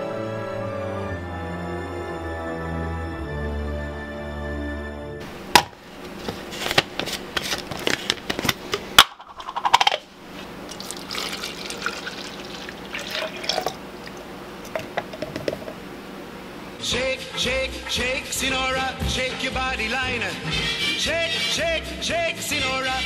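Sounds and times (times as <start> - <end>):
liquid pouring into bottle: 10.7 - 15.2
plastic bottle clicking and knocking: 14.7 - 15.8.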